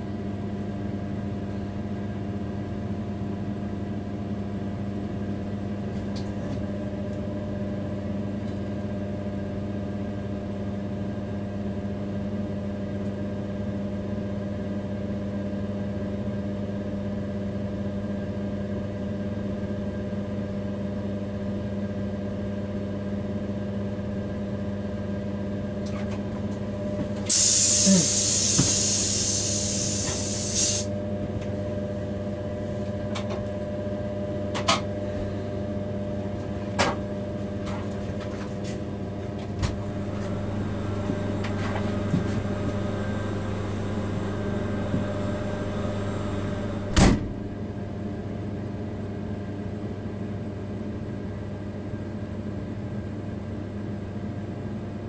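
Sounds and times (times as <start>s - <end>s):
locomotive cab hum: 25.8s - 48.1s
loud hiss: 27.3s - 30.9s.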